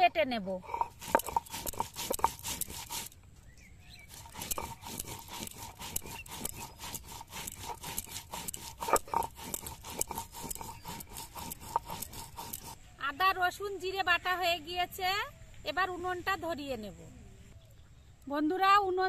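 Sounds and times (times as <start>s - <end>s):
stone roller scraping grinding stone: 0.0s - 3.2s, 3.8s - 12.8s.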